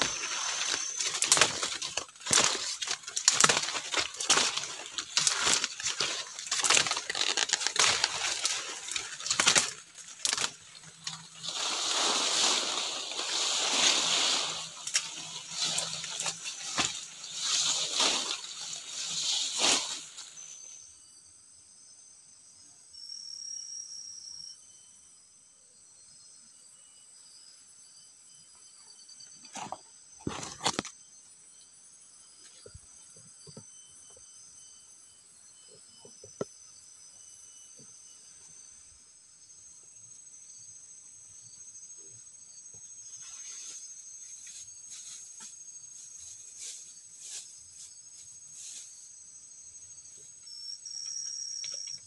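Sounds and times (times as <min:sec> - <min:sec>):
palm fronds rustling and snapping: 0:00.0 - 0:20.6, 0:30.2 - 0:30.9.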